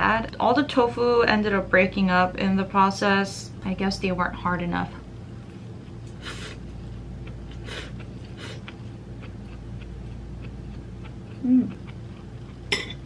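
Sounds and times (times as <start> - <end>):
person humming: 11.3 - 11.9.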